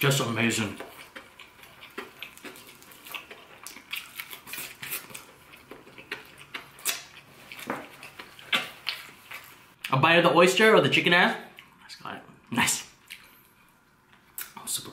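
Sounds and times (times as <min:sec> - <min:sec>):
fried chicken crunching: 0:00.1 - 0:09.8.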